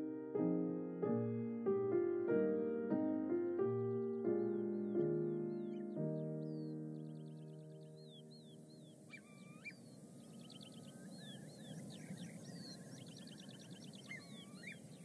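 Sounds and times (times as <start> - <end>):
lower swooping bird calls: 4.0 - 15.0
birds trilling and whistling: 4.1 - 15.0.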